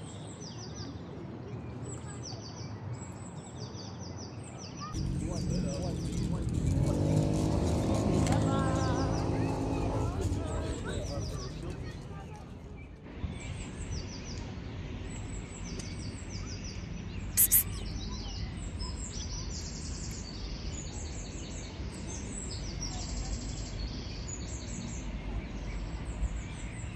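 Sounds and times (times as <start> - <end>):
rapid high-pitched chirping: 17.4 - 17.6
sharp double noise: 17.4 - 17.6.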